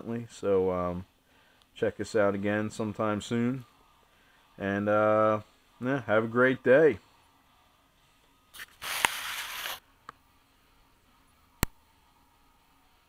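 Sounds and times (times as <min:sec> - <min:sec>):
camera handling rustle: 0:08.6 - 0:09.8.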